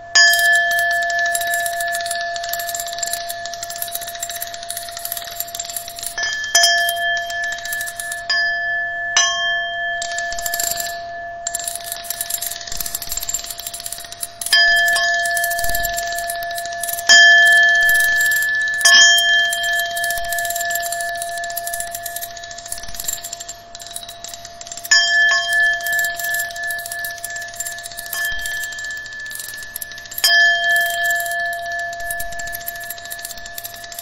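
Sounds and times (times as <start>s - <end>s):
steady high tones: 0.0s - 8.4s, 9.9s - 34.0s
bell-like metallic strikes: 0.0s - 12.6s.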